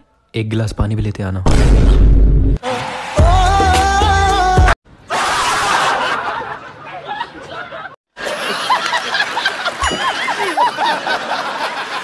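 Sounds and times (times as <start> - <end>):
people laughing loudly: 5.1 - 12.0.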